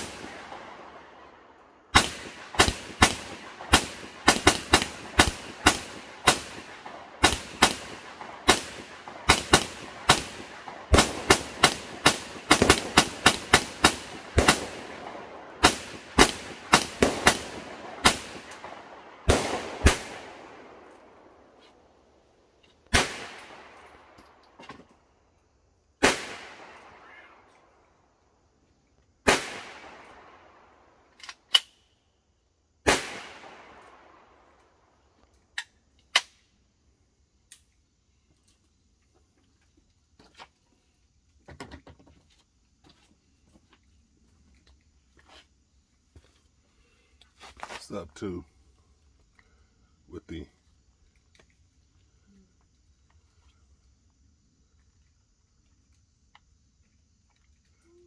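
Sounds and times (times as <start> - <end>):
carbine gunshots: 0.0 - 21.6, 22.9 - 24.2, 26.0 - 27.4, 29.2 - 31.6, 32.8 - 34.4.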